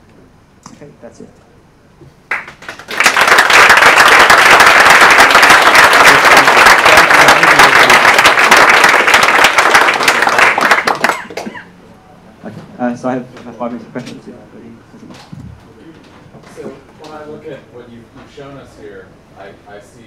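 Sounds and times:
audience applauding: 0:02.3 - 0:11.7.

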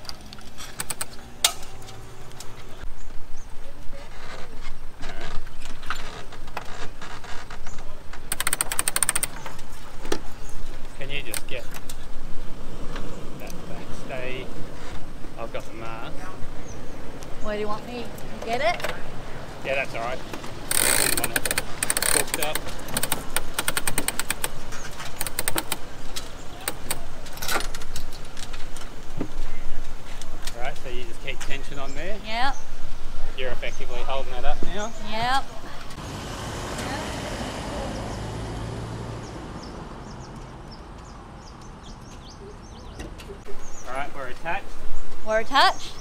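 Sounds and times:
rapid ratchet clicks: 0:08.3 - 0:09.4, 0:20.7 - 0:27.1.

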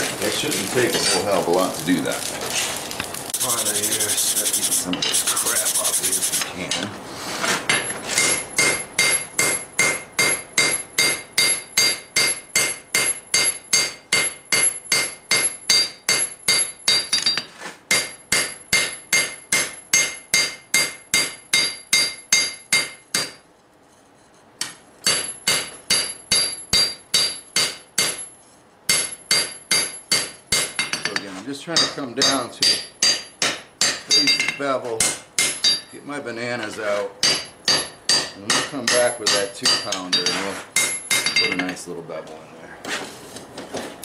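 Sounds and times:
hammer ringing on anvil: 0:08.2 - 0:23.4, 0:25.1 - 0:28.3, 0:28.9 - 0:31.2, 0:31.8 - 0:35.9, 0:37.2 - 0:41.8.

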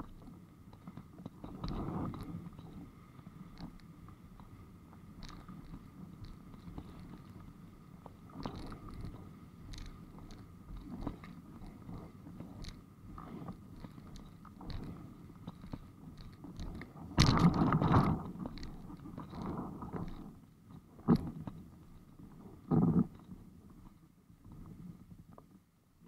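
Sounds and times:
small knocks and clicks: 0:00.0 - 0:02.8, 0:05.2 - 0:21.6
rumble of water and board: 0:00.0 - 0:26.0.

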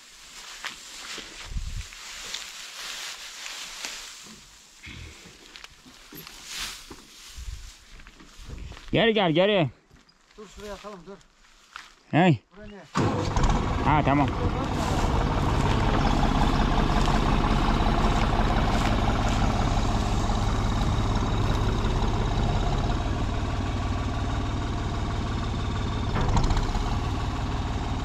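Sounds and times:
vehicle engine running: 0:13.0 - 0:28.0.

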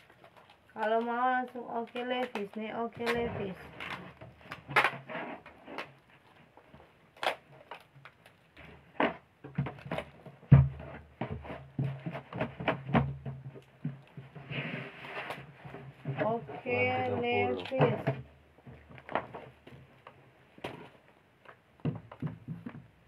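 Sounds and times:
plastic mannequin leg knocking: 0:09.0 - 0:14.4, 0:21.8 - 0:23.0.

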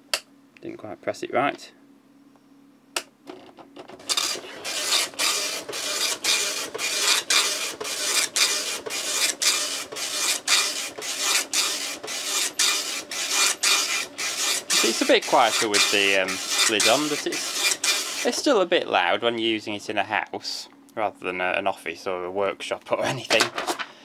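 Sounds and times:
dot-matrix printer printing: 0:03.8 - 0:18.4.

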